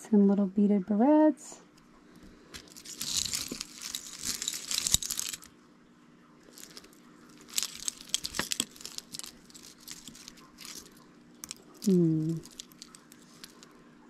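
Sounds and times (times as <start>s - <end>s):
jewelry rustling and clicking: 2.5s - 5.5s, 6.5s - 13.7s.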